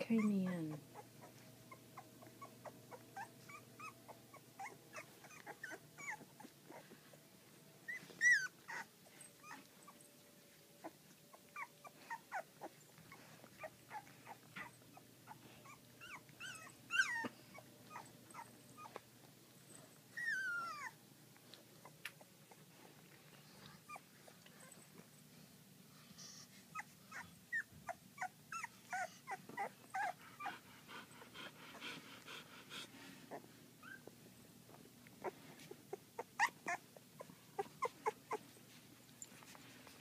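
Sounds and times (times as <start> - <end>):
puppy whining: 0.0 - 25.4, 26.2 - 40.0
puppies squeaking and whimpering: 0.1 - 6.9, 7.9 - 10.2, 10.8 - 19.0, 19.7 - 21.0, 26.4 - 30.6, 33.3 - 34.2, 35.2 - 38.6.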